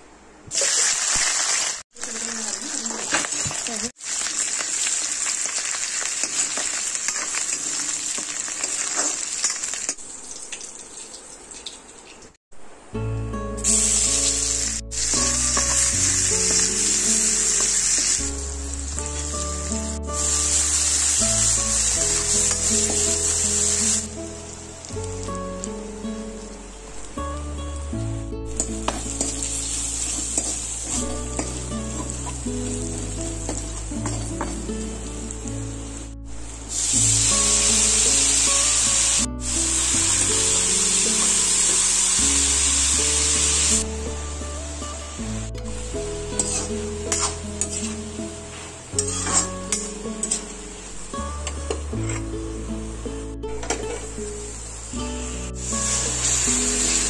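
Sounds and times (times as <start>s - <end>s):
onions sizzling in hot oil: 0.5s - 10.5s, 13.6s - 53.0s, 53.6s - 57.0s
background music: 12.8s - 57.0s
metal spatula stirring in wok: 46.4s - 50.5s.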